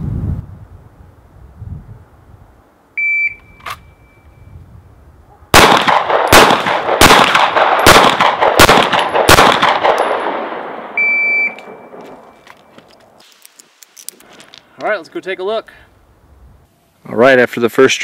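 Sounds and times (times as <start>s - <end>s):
short high beep: 3.0s - 4.5s, 11.0s - 12.0s
pistol shots with echo: 5.5s - 11.0s.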